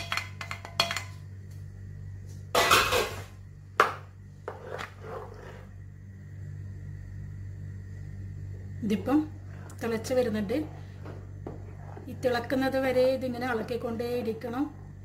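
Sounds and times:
low hum: 0.0s - 15.0s
spatula stirring in pan: 10.4s - 12.3s.

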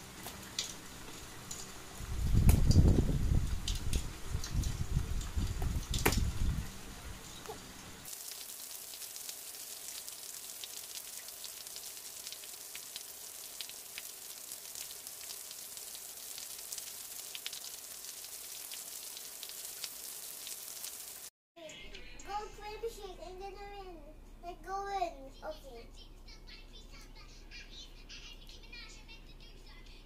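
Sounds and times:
rain falling on wet road: 8.1s - 21.3s.

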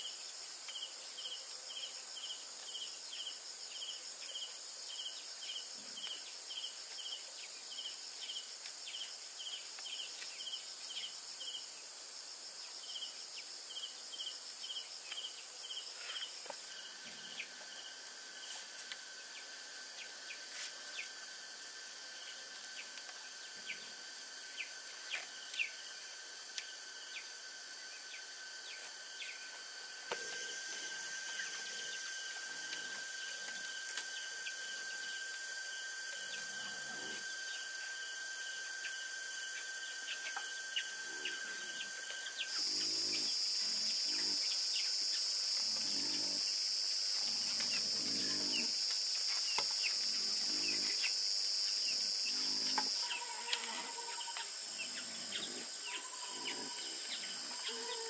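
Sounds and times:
insects chirping and droning: 0.0s - 58.0s
low insect trill: 0.0s - 58.0s.

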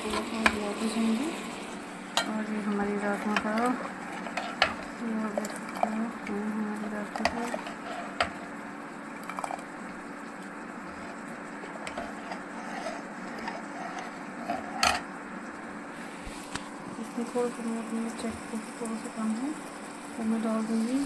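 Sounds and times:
low steady hum: 0.0s - 21.0s
metal ladle stirring in pot: 3.0s - 6.1s.

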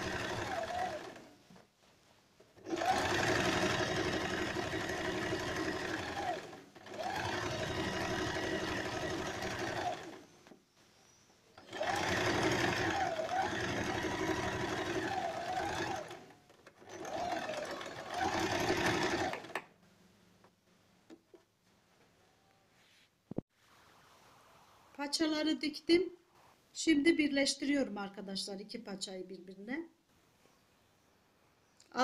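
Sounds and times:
sewing machine stitching: 0.0s - 1.4s, 2.6s - 10.5s, 11.6s - 19.6s.

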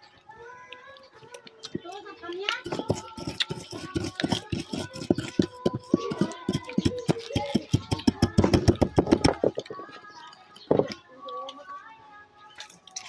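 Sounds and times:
faint voices: 0.0s - 13.0s
pod shells crackling and snapping: 0.7s - 9.8s.

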